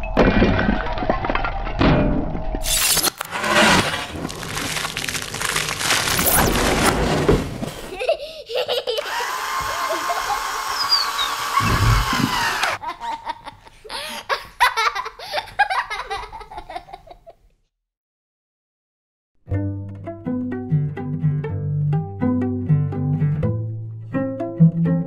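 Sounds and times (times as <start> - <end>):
child laughing: 7.8 - 17.4.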